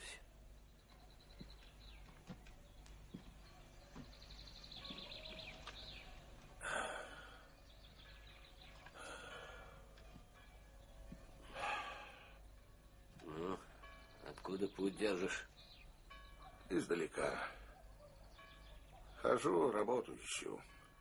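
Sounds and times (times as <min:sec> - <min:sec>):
faint bird chirps: 0:00.0 - 0:21.0
person sighing: 0:13.2 - 0:13.7.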